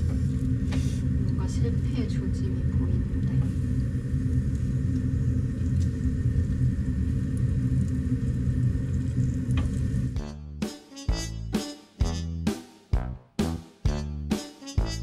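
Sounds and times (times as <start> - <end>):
low rumble: 0.0 - 10.2
music: 10.2 - 15.0.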